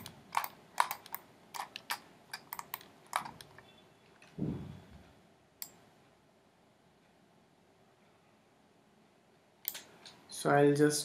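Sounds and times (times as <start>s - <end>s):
keyboard and mouse clicking: 0.0s - 3.6s
short low thud: 4.4s - 4.9s.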